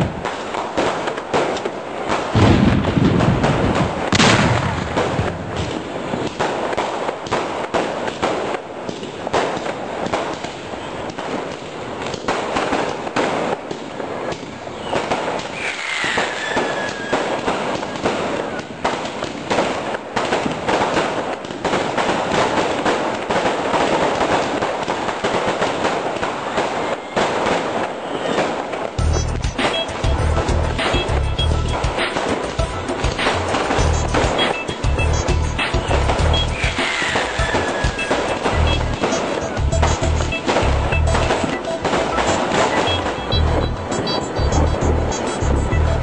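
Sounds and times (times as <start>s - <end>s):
firecrackers crackling and popping: 0.0s - 46.0s
falling firework whistle: 14.2s - 18.8s, 26.6s - 28.9s, 29.5s - 30.2s, 35.6s - 39.6s, 40.3s - 45.4s.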